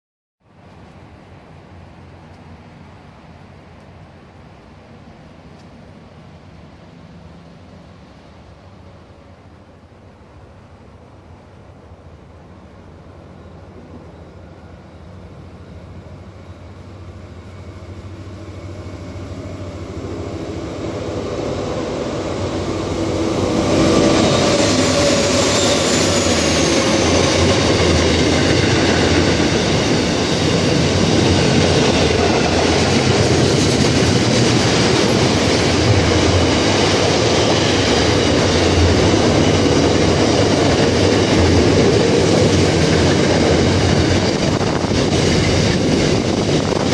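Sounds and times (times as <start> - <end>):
diesel locomotives passing: 0.6 - 46.9
train wagons rolling on rails: 0.6 - 46.9
falling whine: 15.6 - 46.9.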